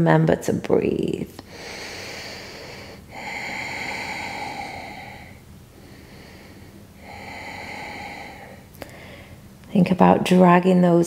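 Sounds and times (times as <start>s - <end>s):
woman breathing slowly: 1.4s - 9.6s.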